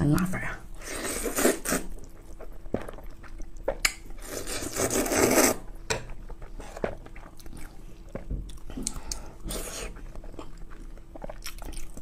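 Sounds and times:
noodles being slurped: 0:00.8 - 0:02.5, 0:04.2 - 0:05.6.

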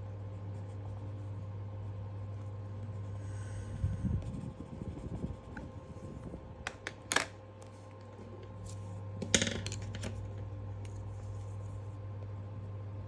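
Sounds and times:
pencil scratching on paper: 0:00.0 - 0:03.2, 0:04.2 - 0:05.7
steady low hum: 0:00.0 - 0:13.0
pencils clicking and knocking: 0:06.7 - 0:07.4, 0:09.2 - 0:10.4.

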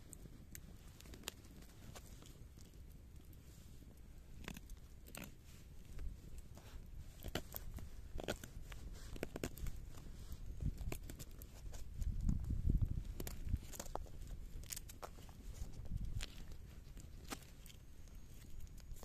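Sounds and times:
knife shaving wooden stick: 0:04.3 - 0:19.0.

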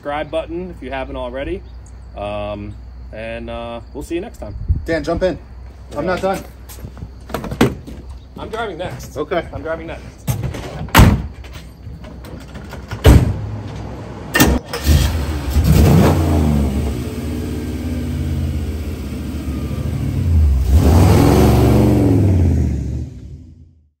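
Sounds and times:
car engine starting and revving: 0:13.2 - 0:23.9
car accelerating away: 0:14.0 - 0:23.7.

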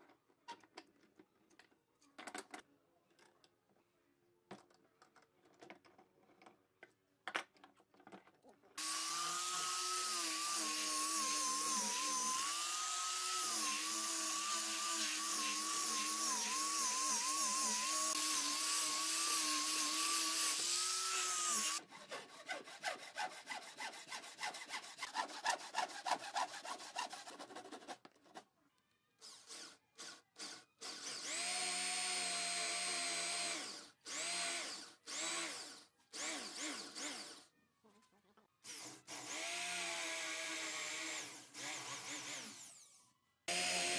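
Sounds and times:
electric drill boring into wood: 0:08.8 - 0:21.8, 0:29.2 - 0:37.5, 0:38.6 - 0:43.9
angle grinder sanding wood: 0:08.8 - 0:27.9, 0:43.5 - 0:43.9
hand saw cutting wood: 0:08.8 - 0:28.1, 0:43.5 - 0:43.9.

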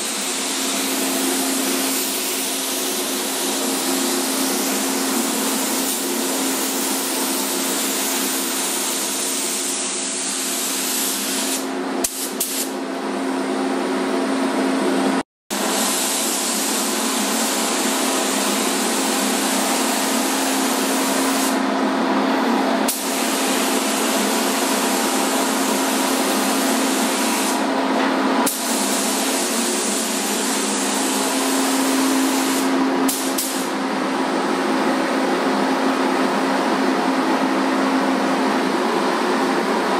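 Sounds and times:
spray gun air hiss: 0:00.0 - 0:12.8, 0:15.6 - 0:21.6, 0:22.9 - 0:27.7, 0:28.4 - 0:33.8.

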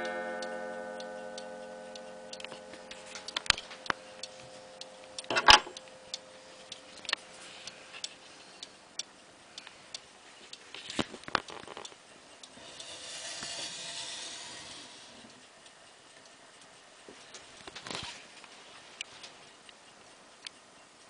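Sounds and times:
pendulum clock ticking: 0:00.0 - 0:10.8, 0:11.4 - 0:17.5
soft noisy hiss: 0:00.0 - 0:21.0.

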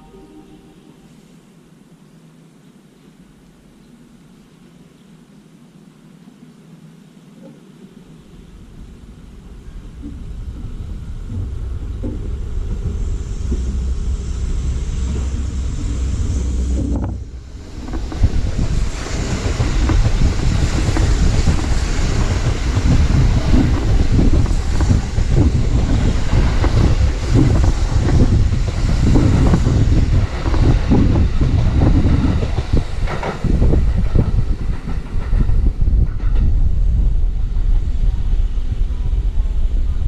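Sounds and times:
train wheels rumbling on rails: 0:07.4 - 0:40.0
clatter over rail joints: 0:16.7 - 0:37.1.

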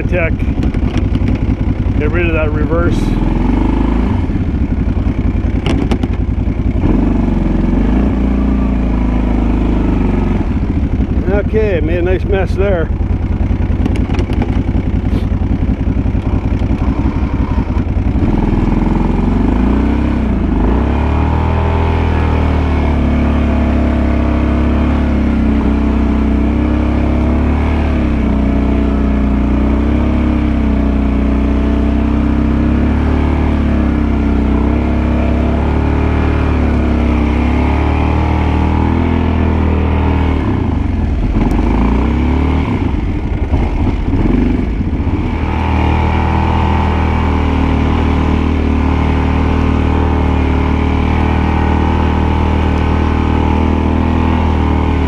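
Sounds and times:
atv engine idling and revving: 0:00.0 - 0:55.0.

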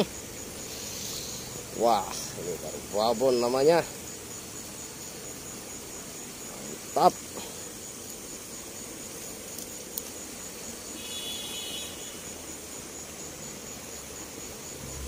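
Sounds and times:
faint insect chirping: 0:00.0 - 0:15.0
steady hiss: 0:00.0 - 0:15.0.

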